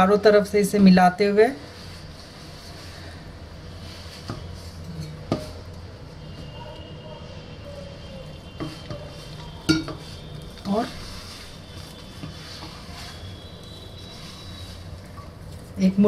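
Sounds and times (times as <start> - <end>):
hands mixing dough in bowl: 0.0 - 16.0
clinks against steel bowl: 9.7 - 10.0.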